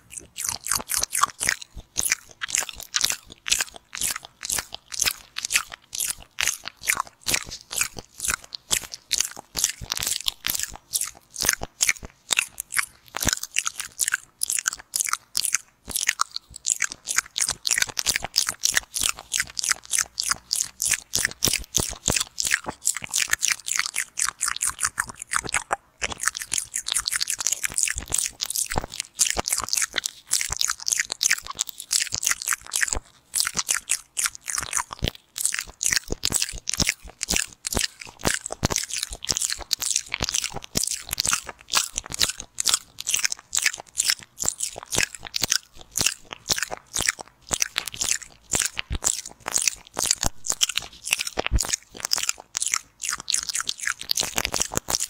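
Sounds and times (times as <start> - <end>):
wet mouth sucking and clicking: 0.0 - 55.0.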